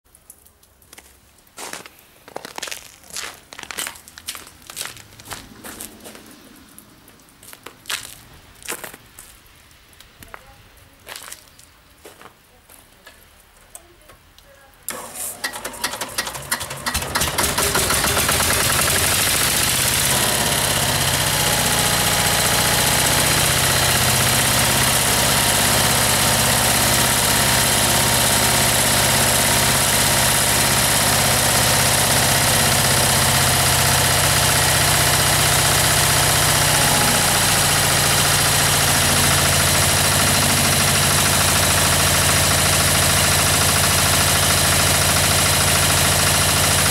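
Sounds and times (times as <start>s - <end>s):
diesel engine cranking: 14.9s - 46.9s
diesel engine idling: 14.9s - 46.9s.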